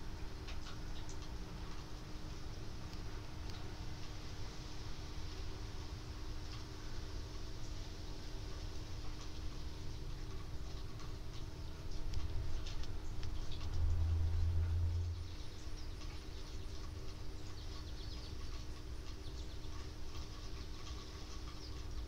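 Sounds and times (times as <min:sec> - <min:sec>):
rain pattering: 0:00.0 - 0:22.0
low rumble: 0:12.2 - 0:16.0.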